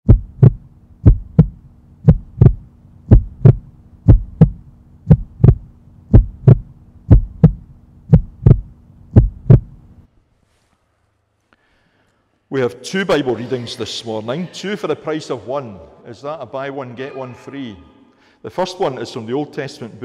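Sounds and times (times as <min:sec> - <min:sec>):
heartbeat thumps: 0:00.0 - 0:10.0
faint low hum: 0:00.1 - 0:20.0.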